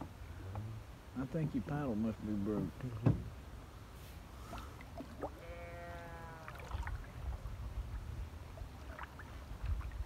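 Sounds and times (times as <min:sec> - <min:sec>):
paddle knocking against canoe: 0:02.6 - 0:03.3.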